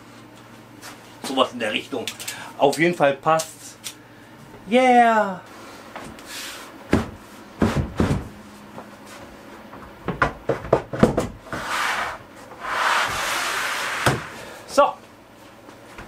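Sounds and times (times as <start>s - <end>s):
board sliding across bench: 11.5s - 14.6s.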